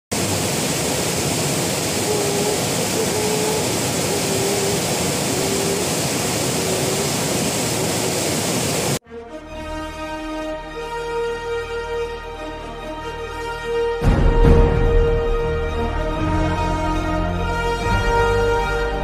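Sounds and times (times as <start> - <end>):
water rushing over weir: 0.1 - 9.0.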